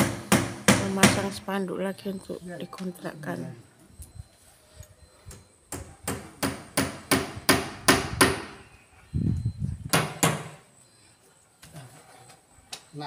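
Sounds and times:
hammer driving nails: 0.0s - 1.3s, 5.7s - 8.6s.

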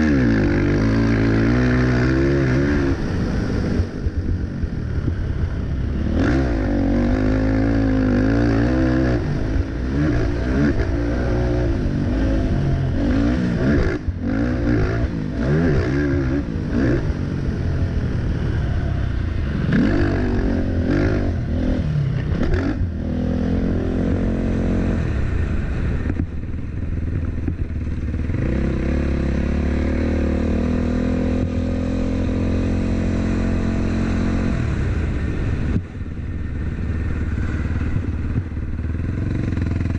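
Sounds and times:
quad engine revving: 0.0s - 4.0s, 5.9s - 17.6s, 18.3s - 26.2s, 27.4s - 39.9s
quad clattering over dirt track: 23.6s - 39.9s.

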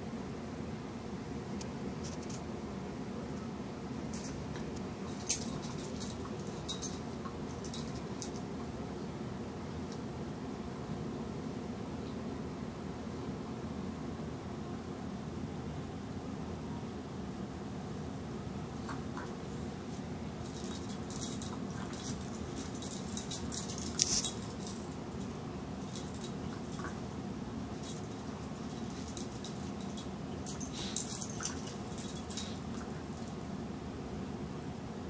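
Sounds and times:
steady low hum: 0.0s - 35.0s
light metallic jingling: 5.0s - 8.5s, 20.4s - 33.5s
animals scuffling on blanket: 21.6s - 24.9s.

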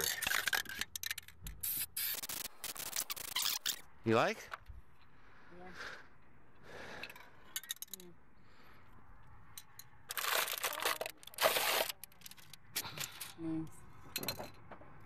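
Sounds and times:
wrapping crinkling and rustling: 10.1s - 12.5s.

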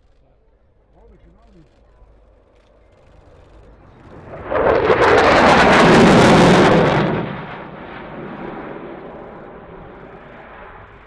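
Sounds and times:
jet engine crackling roar: 2.7s - 11.0s.

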